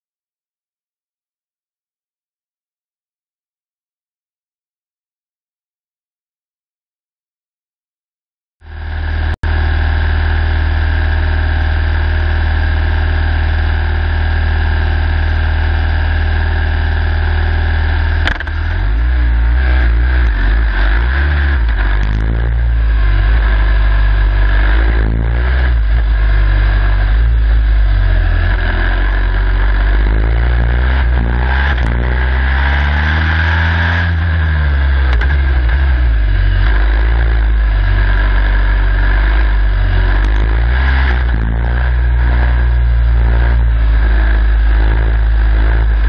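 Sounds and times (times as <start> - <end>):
race car engine: 8.6 - 46.0
gear engaging clunk: 18.2 - 19.2.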